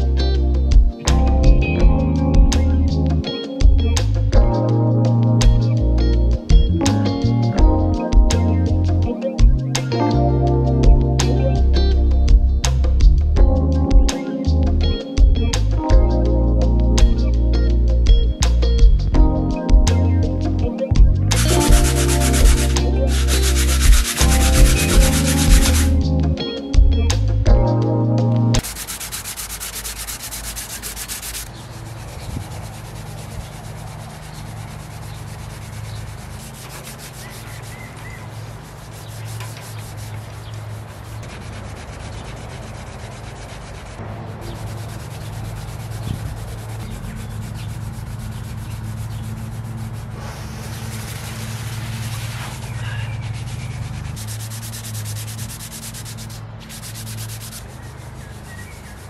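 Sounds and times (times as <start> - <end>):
steady low hum: 0.0 - 27.8
sandpaper rubbing on wood: 21.3 - 26.1, 28.6 - 59.0.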